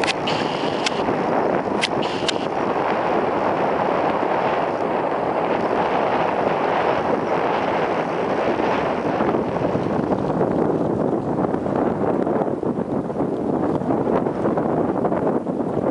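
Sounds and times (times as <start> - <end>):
sharp clicks: 0.0 - 1.1, 1.7 - 2.5
wind rushing over microphone: 0.0 - 15.9.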